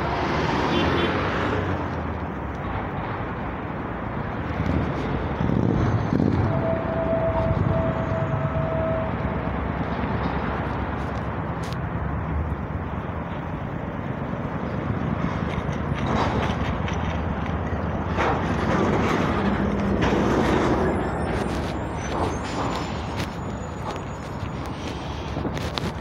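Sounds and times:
metro train rumbling and rattling: 2.6 - 26.0.

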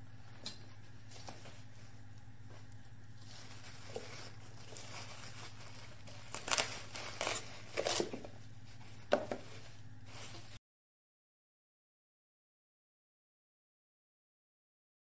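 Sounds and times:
faint low hum: 0.0 - 10.6.

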